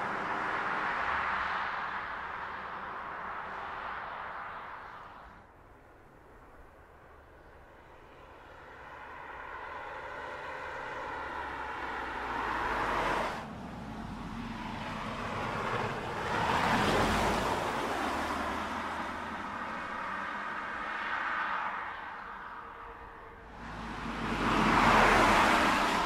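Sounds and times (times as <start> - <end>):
car driving past: 8.4 - 26.0.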